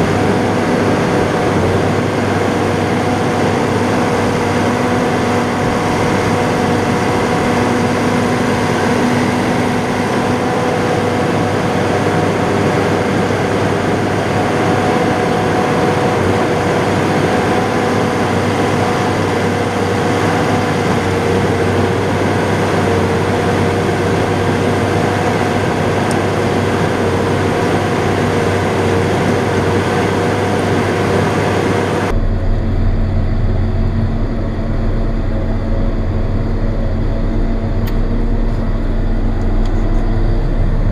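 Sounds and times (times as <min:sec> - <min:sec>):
tractor diesel engine running: 0:00.0 - 0:40.9.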